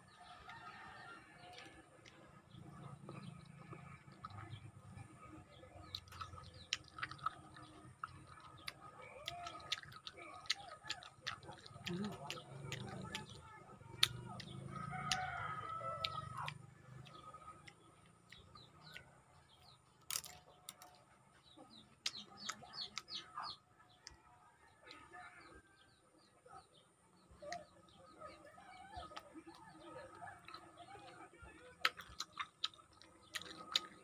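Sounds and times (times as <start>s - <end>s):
mouth sounds eating: 0.0s - 24.2s, 26.6s - 34.0s
chickens clucking: 0.0s - 34.0s
rooster crowing: 14.7s - 16.5s.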